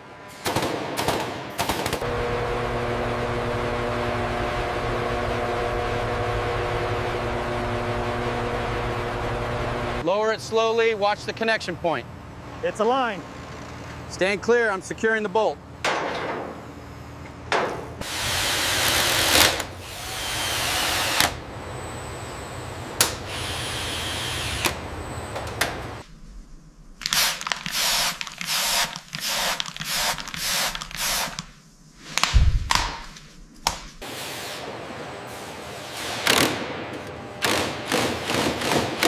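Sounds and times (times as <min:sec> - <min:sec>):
spray bottle spritzes: 0:27.1 - 0:31.4
low thud: 0:32.3 - 0:33.0.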